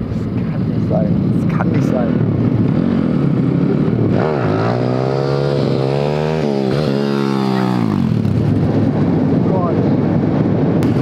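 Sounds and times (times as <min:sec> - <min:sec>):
pit bike engine revving: 0:01.9 - 0:09.1.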